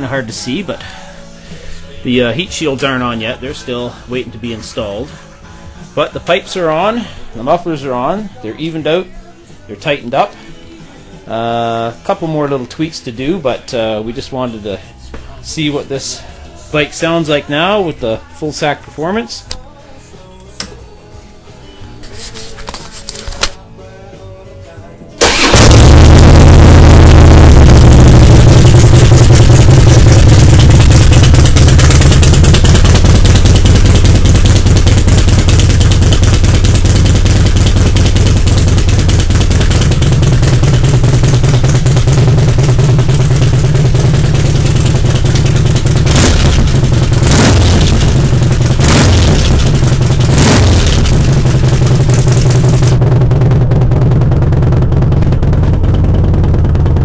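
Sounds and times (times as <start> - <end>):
motorcycle engine idling: 25.2 - 57.0
motorcycle throttle blips: 25.2 - 57.0.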